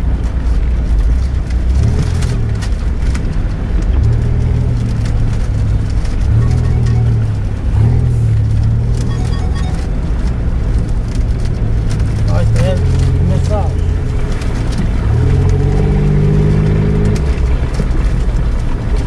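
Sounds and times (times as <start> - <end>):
suv engine revving: 0.7 - 19.0
vehicle knocks and rattles: 10.2 - 19.0.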